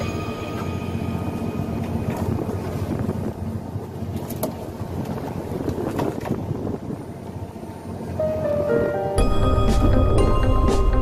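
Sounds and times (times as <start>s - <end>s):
boat engine humming: 0.0s - 11.0s
wind on microphone: 1.8s - 8.0s.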